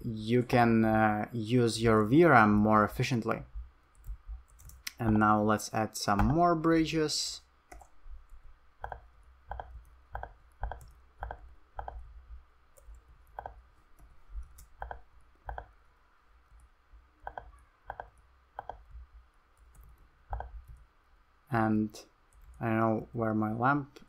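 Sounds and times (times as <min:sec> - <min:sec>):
mouse and keyboard clicking: 0:04.0 - 0:05.2, 0:08.8 - 0:12.0, 0:12.7 - 0:15.7, 0:17.2 - 0:18.9, 0:19.6 - 0:20.8.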